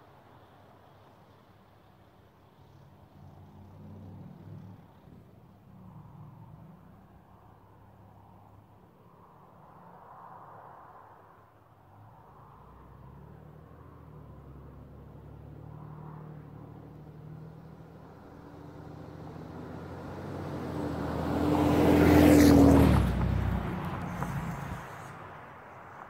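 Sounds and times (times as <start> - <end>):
diesel truck passing by: 12.9 - 26.0.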